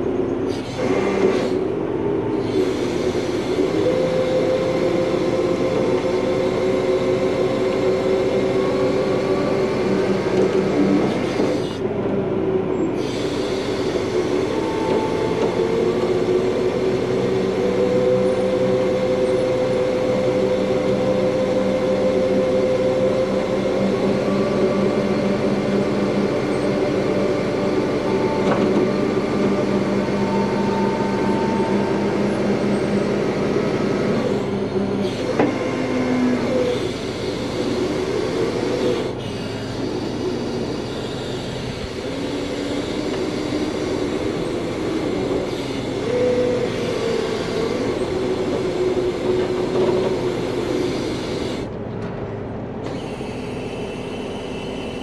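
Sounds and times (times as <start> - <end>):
hydraulic winch whining: 0.0 - 12.0, 12.7 - 51.9, 52.6 - 55.0
diesel engine running: 0.0 - 55.0.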